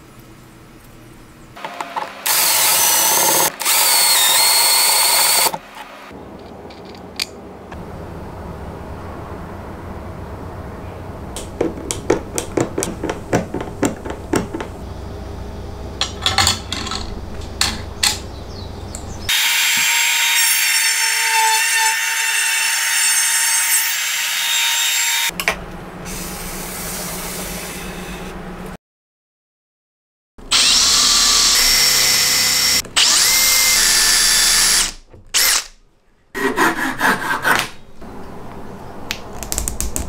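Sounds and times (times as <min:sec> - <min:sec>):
router whining cutting wood: 0:02.2 - 0:06.0, 0:30.5 - 0:35.7.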